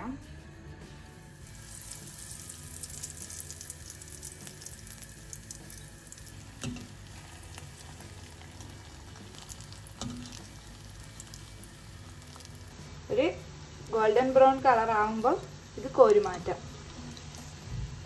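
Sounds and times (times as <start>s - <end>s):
food sizzling in hot oil: 1.1s - 18.0s
fork knocking on metal pan: 6.6s - 7.0s.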